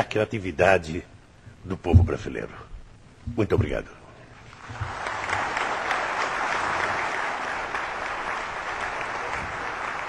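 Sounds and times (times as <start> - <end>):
audience applauding: 4.5 - 10.0.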